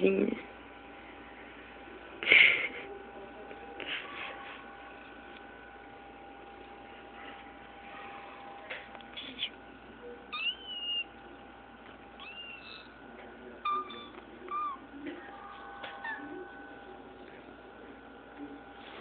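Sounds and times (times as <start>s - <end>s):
kitten meowing: 10.3s - 11.1s, 12.2s - 13.0s, 13.6s - 14.8s.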